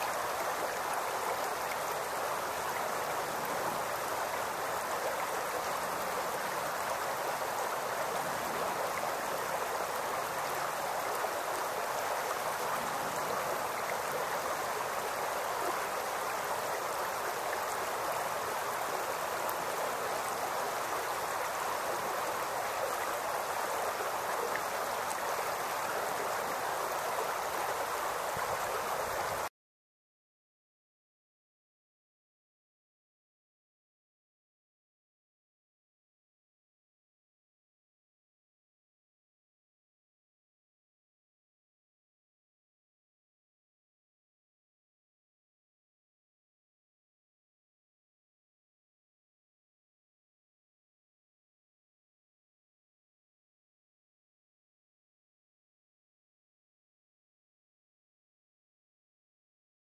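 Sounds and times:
creek babbling over rocks: 0:00.0 - 0:29.5.

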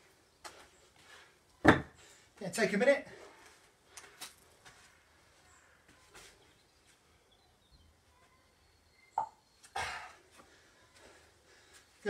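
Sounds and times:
faint bird chirps: 0:05.4 - 0:10.1.

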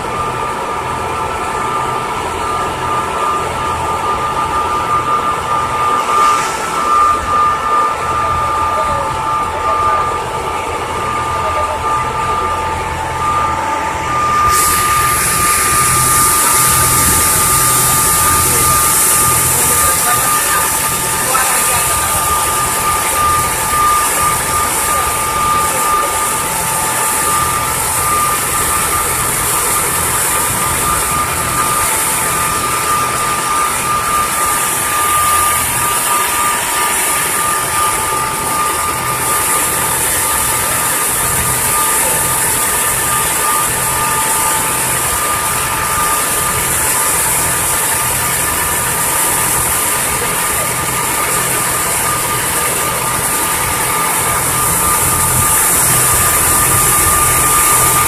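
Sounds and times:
ferry engine droning: 0:00.0 - 0:58.0
hiss: 0:06.0 - 0:08.3, 0:14.5 - 0:22.2.

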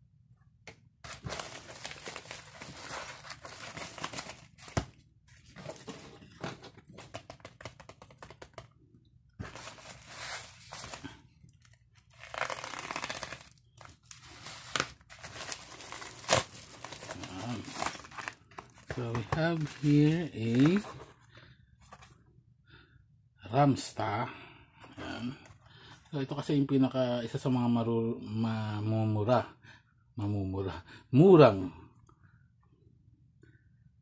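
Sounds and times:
plastic mailer crinkling: 0:01.0 - 0:08.7, 0:09.4 - 0:21.1.

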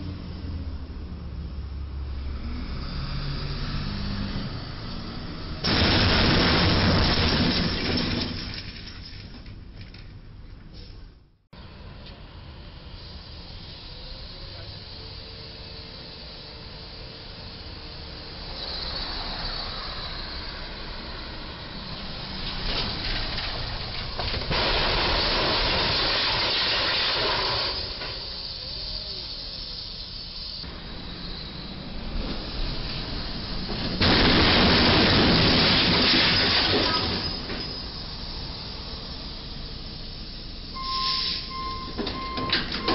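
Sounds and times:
street traffic: 0:00.0 - 0:42.9
loud hissing: 0:12.8 - 0:41.7.

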